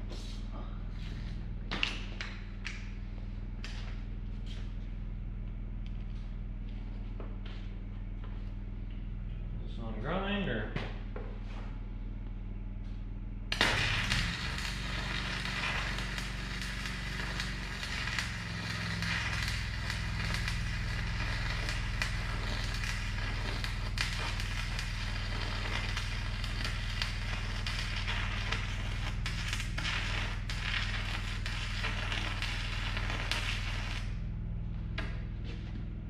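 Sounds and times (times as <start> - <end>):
electric arc welding crackle: 13.5 - 34.4.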